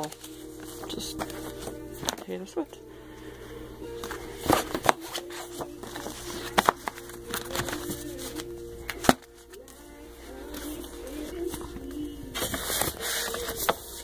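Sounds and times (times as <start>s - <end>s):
magazines slapping down: 0.0s - 2.4s, 4.0s - 9.8s
magazines being shuffled: 0.0s - 2.6s, 3.9s - 14.0s
faint music: 0.0s - 14.0s.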